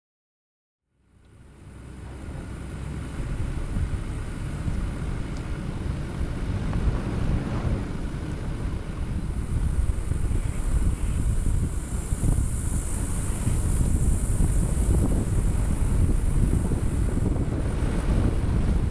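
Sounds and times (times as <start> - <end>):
pickup engine rumble: 0.9 - 18.9
wind noise on microphone: 1.2 - 18.9
tyres over rough ground: 1.3 - 18.9.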